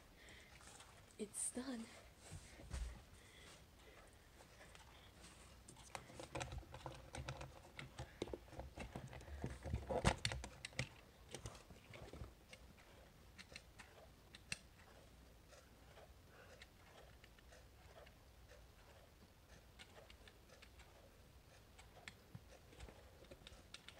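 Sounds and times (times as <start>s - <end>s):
plastic clock clicks and knocks: 5.9s - 12.6s.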